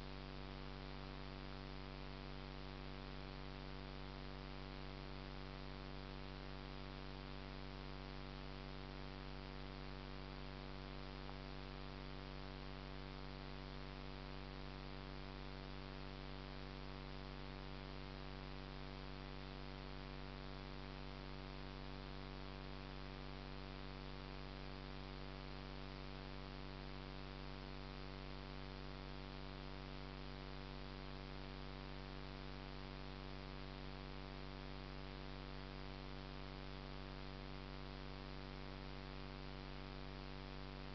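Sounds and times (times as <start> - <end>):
electrical hum with hiss: 0.0 - 40.9.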